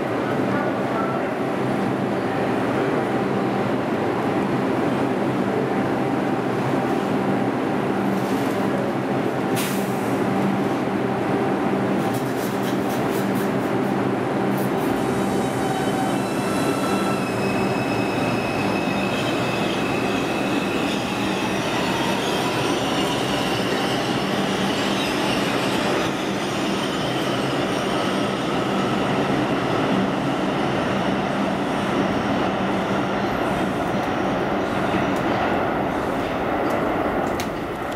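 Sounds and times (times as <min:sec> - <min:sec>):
subway train wheels on rails: 0:00.0 - 0:37.9.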